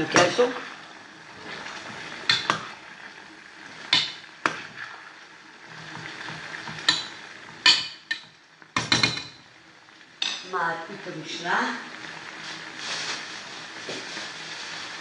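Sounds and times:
sausages sizzling in a pot: 0.0s - 15.0s
spoon knocking against pot: 6.7s - 9.4s.

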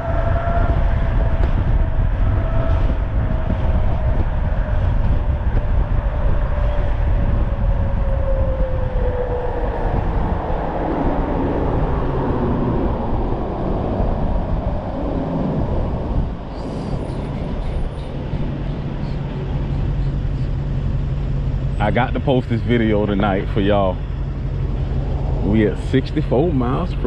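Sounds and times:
low steady hum: 0.0s - 27.0s
wind rushing over microphone: 0.0s - 27.0s.

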